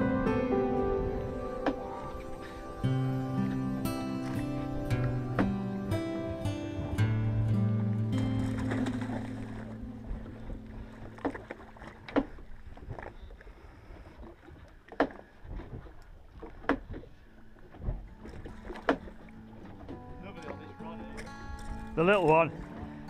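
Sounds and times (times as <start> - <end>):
knocks and slaps against boat: 1.6 - 2.0, 5.0 - 7.2, 11.1 - 13.1, 14.9 - 17.1, 17.7 - 23.0.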